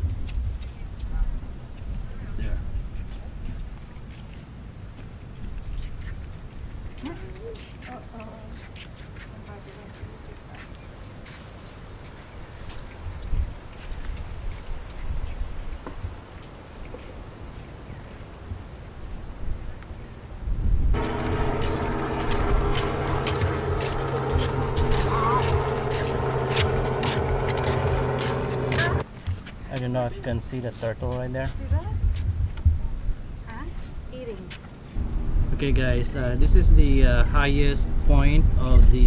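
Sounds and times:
insects buzzing: 0.0s - 38.8s
wind rumble on microphone: 20.4s - 29.0s, 31.5s - 34.1s, 35.0s - 39.0s
held low tones: 21.0s - 29.0s, 35.0s - 39.0s.

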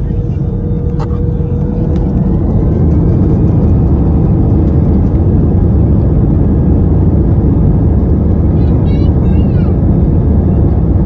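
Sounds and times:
aircraft rolling on ground: 0.0s - 11.0s
jet engines rumbling: 0.0s - 11.0s.

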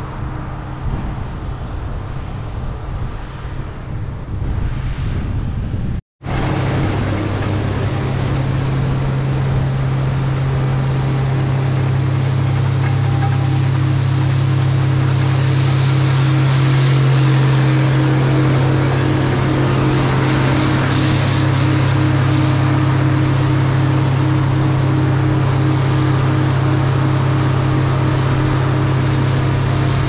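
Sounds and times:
machinery humming: 6.2s - 30.0s
faint pulsing tone: 6.4s - 24.3s.

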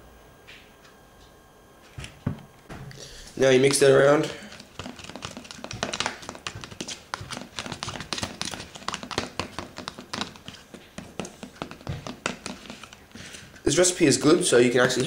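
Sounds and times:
utensil tapping plastic tub: 4.5s - 13.0s.

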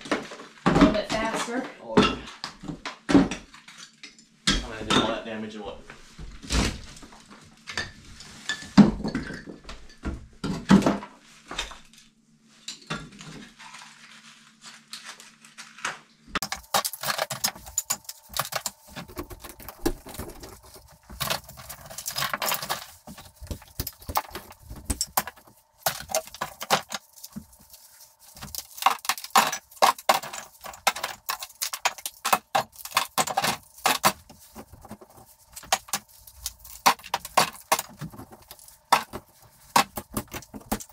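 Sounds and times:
plaster crumbling: 16.4s - 40.9s.

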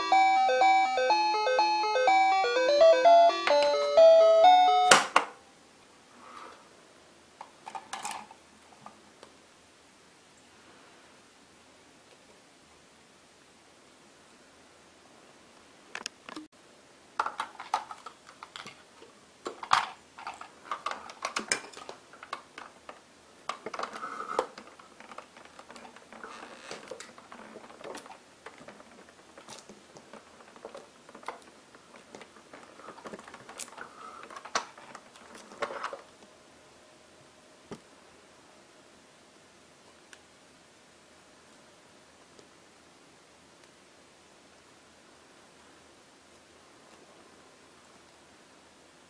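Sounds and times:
plastic toy parts clicking and rattling: 7.6s - 8.4s, 17.2s - 18.8s, 19.4s - 36.1s.

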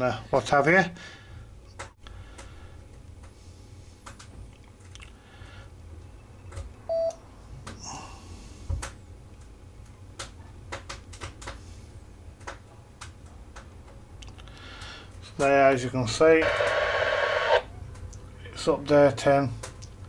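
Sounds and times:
low steady hum: 0.0s - 20.0s
radio transceiver beep: 16.4s - 17.7s.

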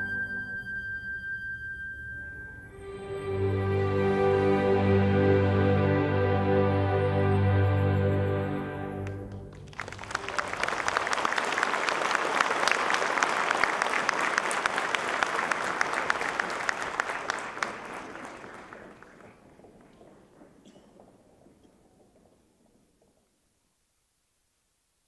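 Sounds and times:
ballet music: 0.0s - 10.7s
audience applauding: 9.0s - 22.7s.

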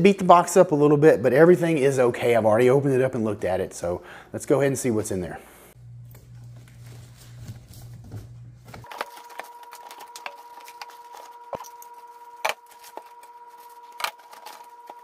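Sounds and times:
cardboard and plastic rustling: 6.2s - 15.0s.

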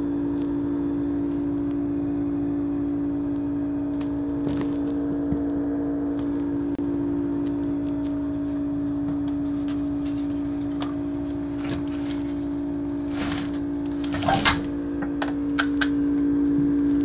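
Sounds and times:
refrigerator compressor humming: 0.0s - 17.0s
knocks and rustles of handling: 8.0s - 15.2s.

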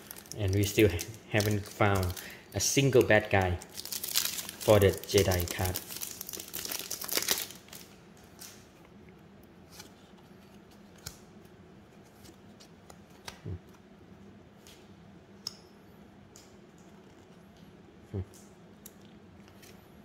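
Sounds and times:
foil pack crinkling as torn open: 0.0s - 8.6s.

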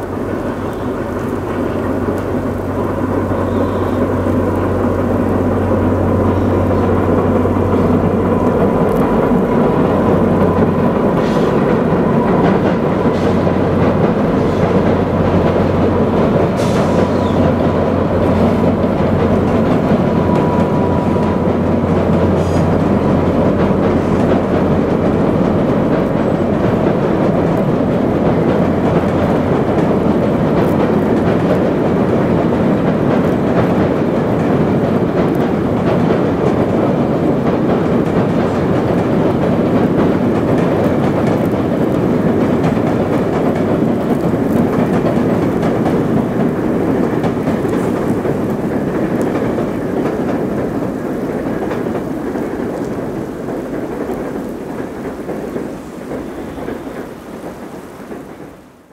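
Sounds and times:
train rumbling across bridge: 0.0s - 58.9s.

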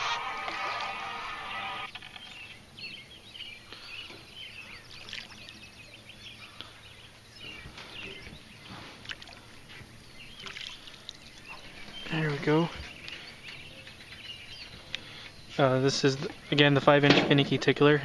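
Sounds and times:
birds chirping: 0.0s - 18.0s
fish splashing at water surface: 4.9s - 5.6s, 10.4s - 11.2s.

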